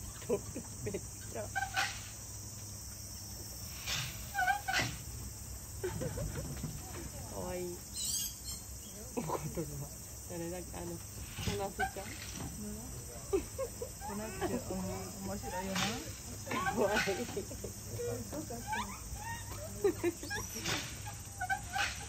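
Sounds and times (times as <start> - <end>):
low background ambience: 0.0 - 22.0
short chirping calls: 7.9 - 9.0.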